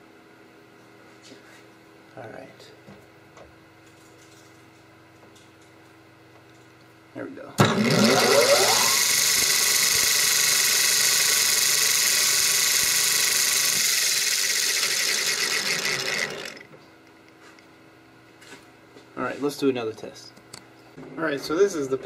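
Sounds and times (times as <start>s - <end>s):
lathe spinning gears whine: 7.6s - 16.8s.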